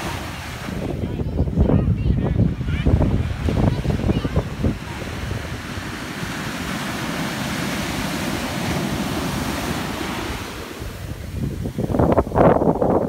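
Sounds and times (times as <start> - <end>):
small waves breaking on sand: 0.0 - 1.2, 2.5 - 12.5
wind buffeting microphone: 0.0 - 13.0.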